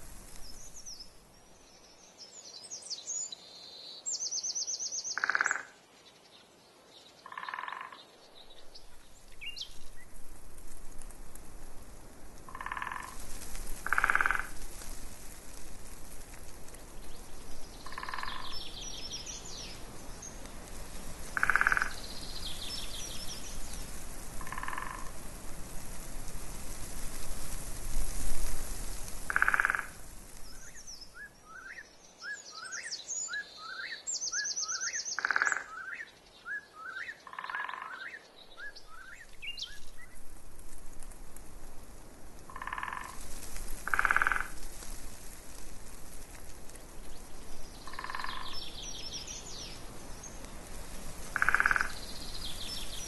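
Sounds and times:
birds twittering: 17.0 - 20.5, 47.1 - 50.5.

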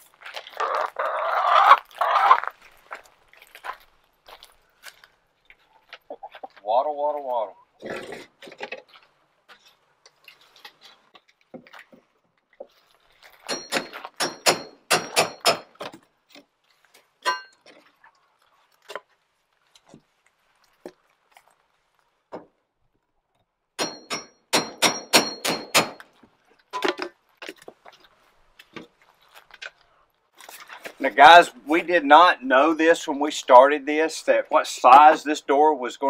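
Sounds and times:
hammer striking wood: 13.5 - 15.9, 23.8 - 26.0.

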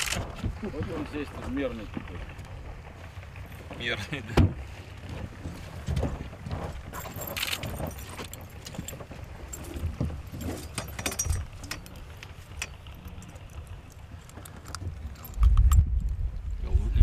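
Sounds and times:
handling clicks and clinks: 6.9 - 15.8
wind on microphone: 14.9 - 17.0.

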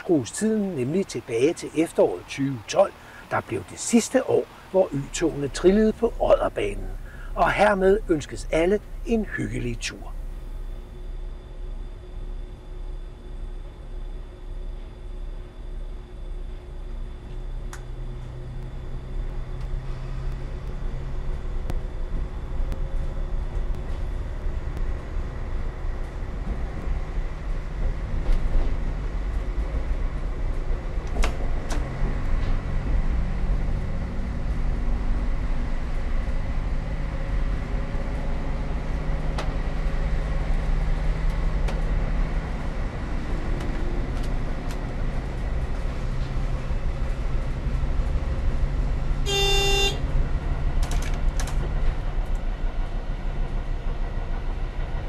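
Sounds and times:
diesel railcar engine hum: 0.0 - 55.0
train horn blast: 49.2 - 50.0.

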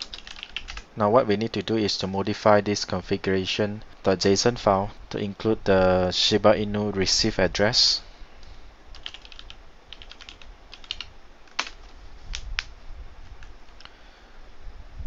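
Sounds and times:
computer keyboard keys clicking: 0.0 - 0.8, 9.0 - 12.4.

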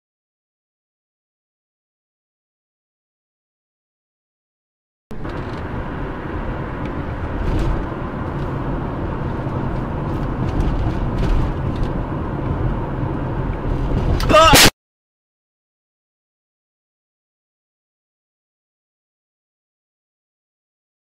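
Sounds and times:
car engine running: 5.1 - 14.3
tyre road noise: 5.1 - 14.7.

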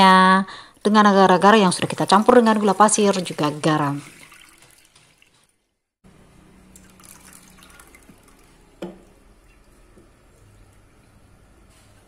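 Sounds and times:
liquid trickling into saucepan: 2.5 - 5.5, 6.7 - 11.2.

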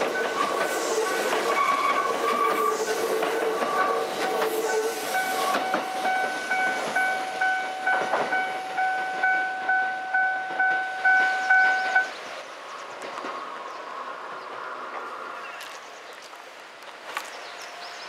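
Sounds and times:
train wheels clattering on rails: 0.0 - 13.7
level-crossing alarm ringing: 3.7 - 12.1.

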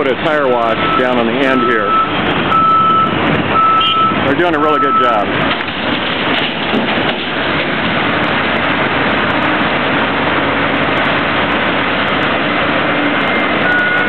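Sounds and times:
diesel truck engine: 0.0 - 14.0
truck backup alarm beeping: 0.6 - 5.3, 13.2 - 14.0.

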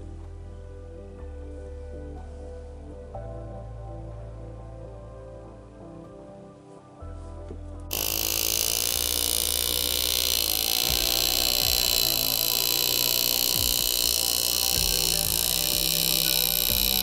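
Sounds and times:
engraving tool buzzing: 7.9 - 17.0.

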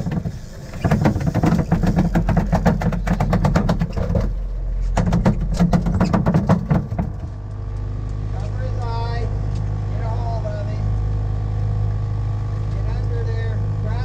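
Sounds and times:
knocks and slaps: 0.0 - 7.4
boat engine running: 0.0 - 14.0.

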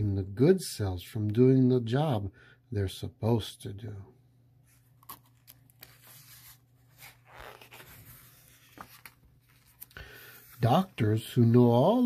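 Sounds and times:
paper page rustling: 4.7 - 11.1
page swishing: 5.0 - 10.9.

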